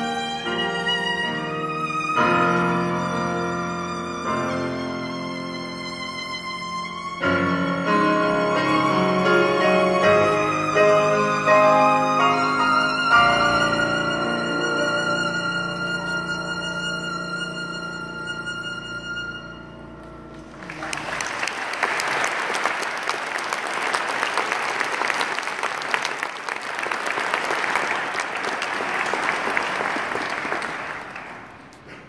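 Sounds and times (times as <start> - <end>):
violin holding a long note: 0.0 - 21.3
audience applause: 20.3 - 32.0.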